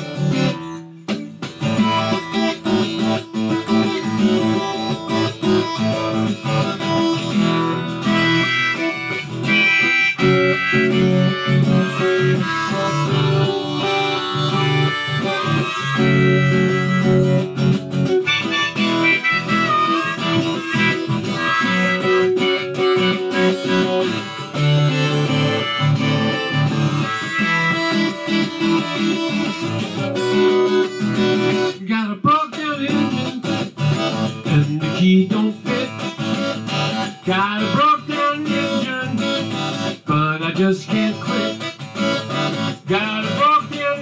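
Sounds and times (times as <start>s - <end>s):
harmonica: 0.0s - 31.8s, 32.5s - 44.0s
acoustic guitar strumming: 0.0s - 44.0s.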